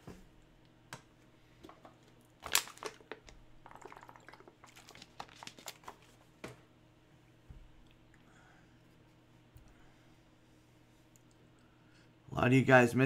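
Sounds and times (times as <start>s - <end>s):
card packaging crinkling: 2.4s - 6.3s.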